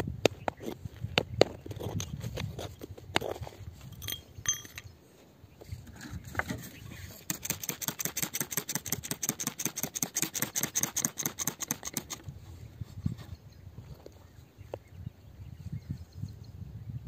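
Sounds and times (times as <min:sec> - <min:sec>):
metal tool scraping dry soil: 0:00.2 - 0:04.9, 0:05.6 - 0:13.4.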